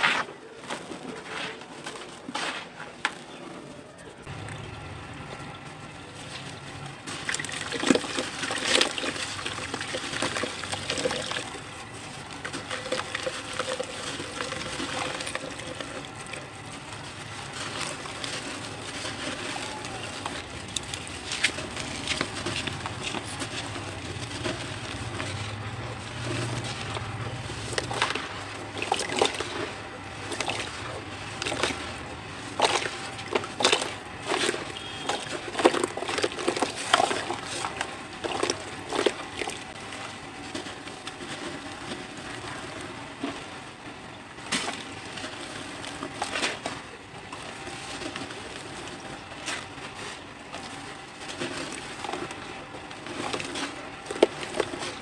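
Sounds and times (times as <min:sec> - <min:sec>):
cement chunks crushed by hand: 0:07.0 - 0:43.6.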